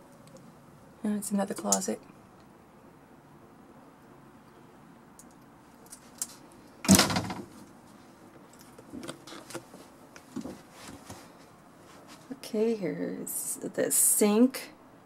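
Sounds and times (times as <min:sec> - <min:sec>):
wooden door banging: 0:06.9 - 0:07.6
faint knocks and shuffles: 0:07.4 - 0:12.5.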